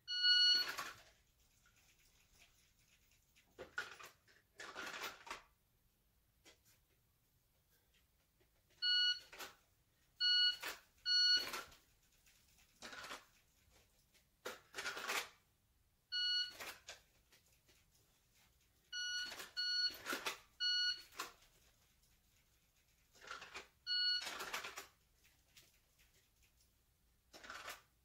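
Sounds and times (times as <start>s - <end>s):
shot timer beeps: 10.2s - 11.6s.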